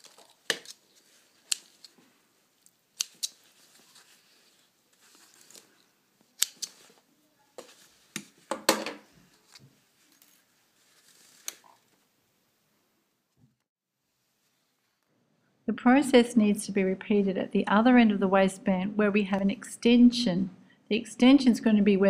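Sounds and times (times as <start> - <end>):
fabric rustling: 0.0 - 12.2, 14.0 - 15.0
scissors snipping thread: 2.6 - 3.4, 6.3 - 6.9.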